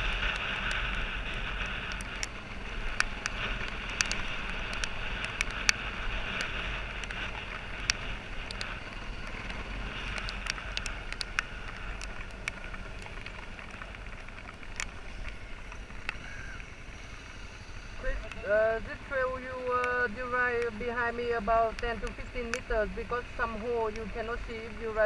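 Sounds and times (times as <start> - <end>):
dirt bike engine at low speed: 0.0 - 25.0
clicks and knocks from rough ground: 0.1 - 16.7.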